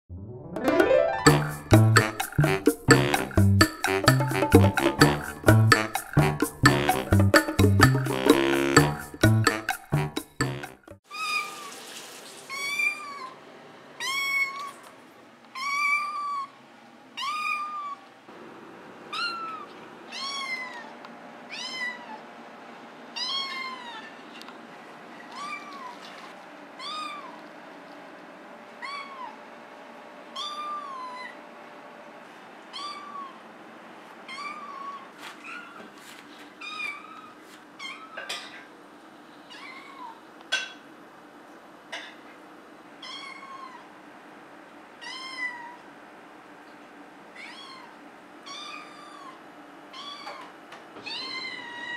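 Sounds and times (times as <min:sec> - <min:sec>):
kitten meowing: 0:19.1 - 0:20.9, 0:23.2 - 0:24.1, 0:30.4 - 0:31.3, 0:32.7 - 0:33.4, 0:48.5 - 0:51.9.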